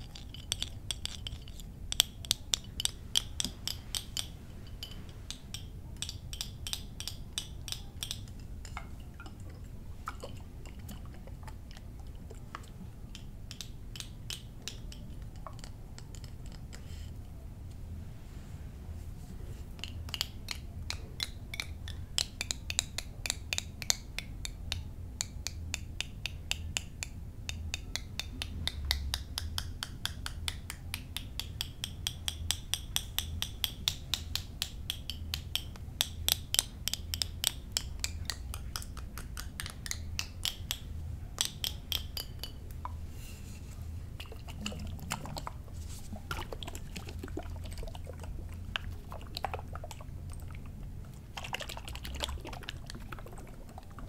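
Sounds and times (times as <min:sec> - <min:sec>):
tapping on small bottles: 0:00.0 - 0:16.8, 0:19.8 - 0:43.0, 0:44.2 - 0:50.6
low steady hum: 0:00.0 - 0:54.0.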